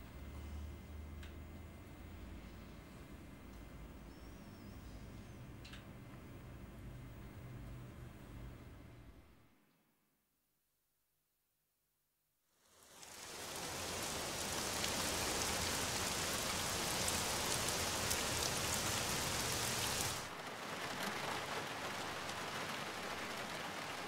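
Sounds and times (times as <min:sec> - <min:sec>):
steady rain falling: 0:12.6 - 0:24.0
rain on a car from inside: 0:12.7 - 0:24.0.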